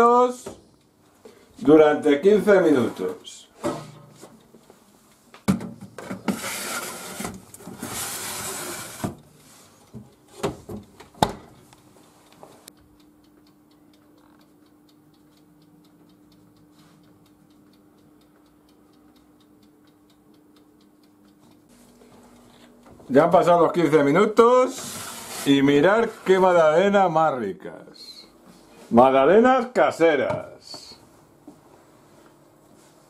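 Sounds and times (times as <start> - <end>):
electric oven humming: 0.0 - 33.0
metal baking tray scraping: 6.1 - 9.2, 24.7 - 26.5
faint ticking: 11.6 - 28.4.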